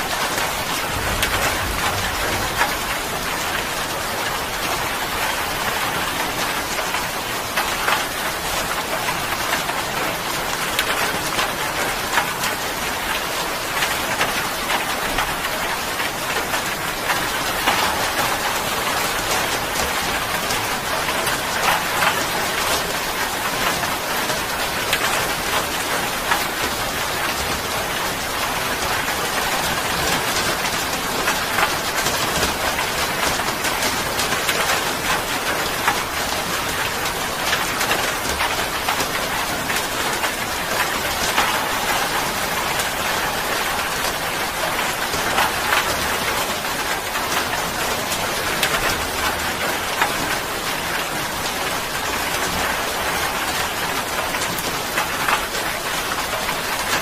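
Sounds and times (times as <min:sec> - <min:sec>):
rain hiss: 0:00.0 - 0:06.5
raindrops striking: 0:00.1 - 0:06.4.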